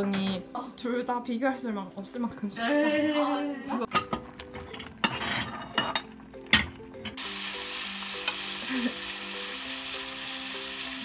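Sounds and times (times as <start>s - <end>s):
bacon sizzling in frying pan: 3.9s - 11.0s.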